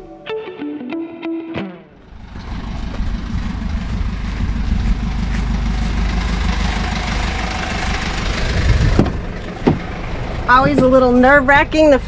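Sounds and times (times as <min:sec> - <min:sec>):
van engine rumble: 0:02.0 - 0:12.0
tyre and wind noise: 0:02.2 - 0:06.7, 0:07.3 - 0:11.3.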